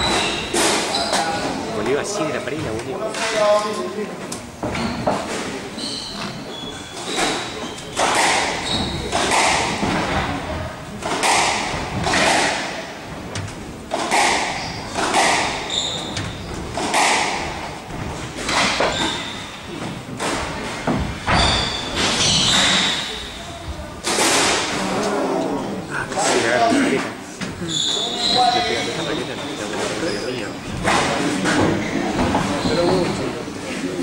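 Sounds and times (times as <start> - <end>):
shoes squeaking on wooden floor: 0.0 - 2.9, 4.6 - 10.3, 13.1 - 23.4, 27.4 - 33.5
squash ball hits: 7.0 - 10.4, 11.0 - 19.2, 24.0 - 24.8.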